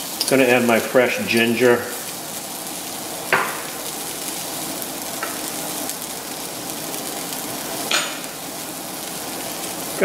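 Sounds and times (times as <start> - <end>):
onions sizzling in oil: 0.0 - 10.0.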